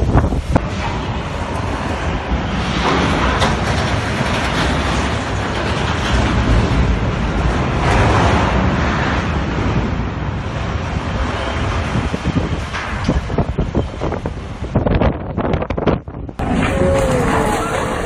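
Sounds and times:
storm wind rushing: 0.0 - 18.0.

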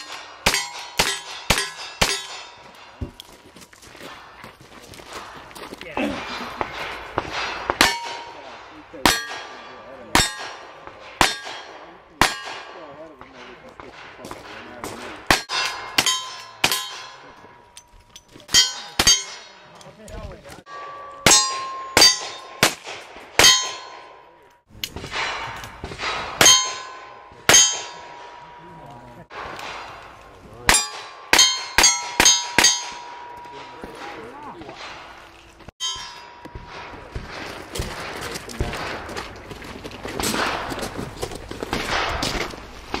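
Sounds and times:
steel targets clanging: 0.0 - 3.0, 6.2 - 35.2, 35.8 - 37.0
gunshots: 0.0 - 3.1, 5.0 - 17.4, 21.2 - 35.2, 36.5 - 39.4, 40.0 - 43.0.

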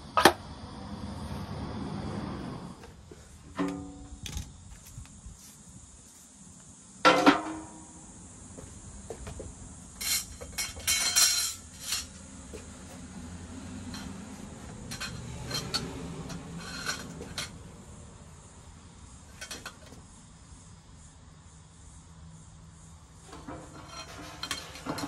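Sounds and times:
metal clanking and scraping: 3.1 - 4.5, 7.1 - 7.9, 10.0 - 17.7, 19.3 - 20.0, 23.3 - 25.0.

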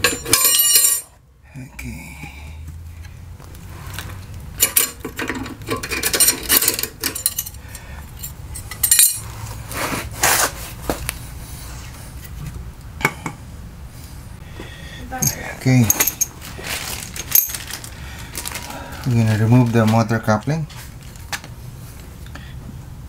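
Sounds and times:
metal parts clinking and scraping: 0.0 - 1.2, 3.9 - 9.4, 15.2 - 18.6
steady low hum: 0.0 - 23.0.

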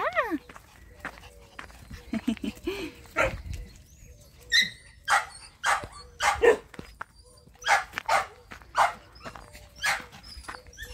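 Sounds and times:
dog barking: 5.1 - 6.7, 7.6 - 9.1, 9.8 - 10.1.

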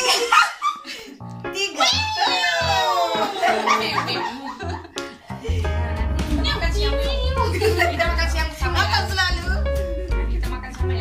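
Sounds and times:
women laughing: 0.0 - 1.2, 2.3 - 5.7
background music with low beat: 3.9 - 11.0.

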